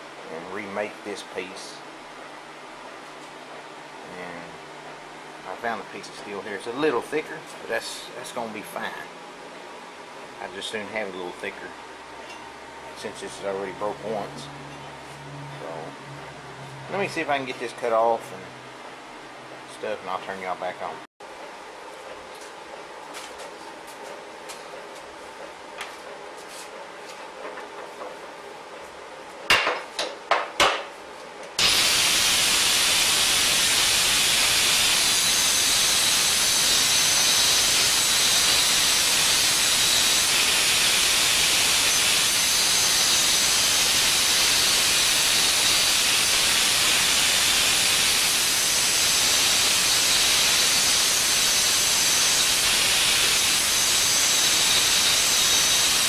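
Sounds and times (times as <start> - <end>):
plasma cutter hissing: 31.6 - 56.0.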